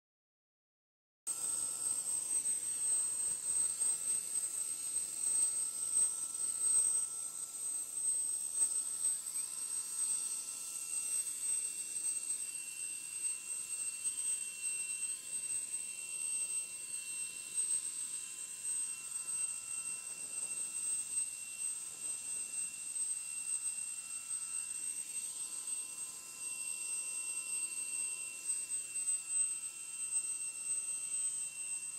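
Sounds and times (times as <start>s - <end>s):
high turbine whine: 1.3s - 31.9s.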